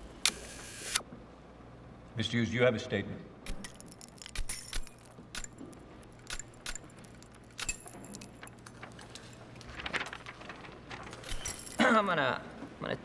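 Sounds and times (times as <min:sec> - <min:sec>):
camera shutter clicks and rattles: 0:03.5 - 0:08.8.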